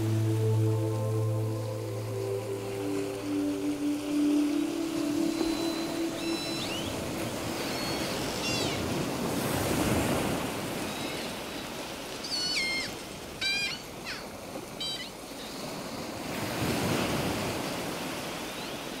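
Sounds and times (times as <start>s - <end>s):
sea waves washing on beach: 0.0s - 19.0s
seagulls calling: 3.2s - 9.4s, 10.7s - 11.5s, 12.2s - 15.6s.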